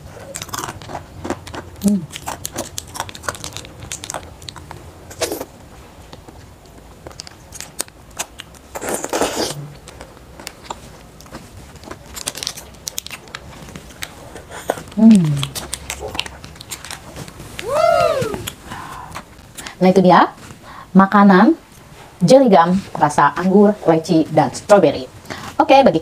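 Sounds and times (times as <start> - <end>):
chewing crunchy frozen gum: 0.0 - 17.6.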